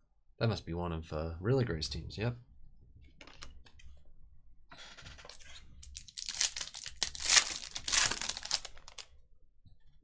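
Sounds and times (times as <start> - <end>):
foil wrapper tearing and crinkling: 5.9 - 9.1.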